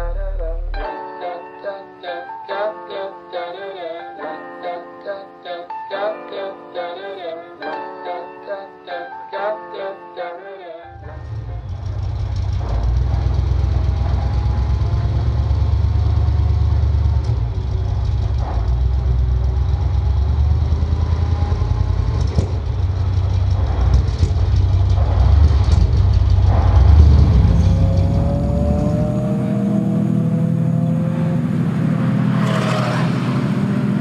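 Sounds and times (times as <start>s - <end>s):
race car engine idling: 11.0s - 32.4s.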